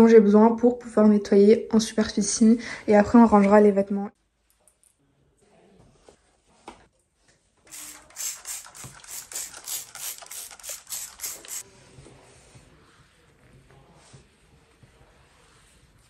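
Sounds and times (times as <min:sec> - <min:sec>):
spray bottle squirting: 0:07.7 - 0:11.6
cloth wiping a surface: 0:11.3 - 0:16.0.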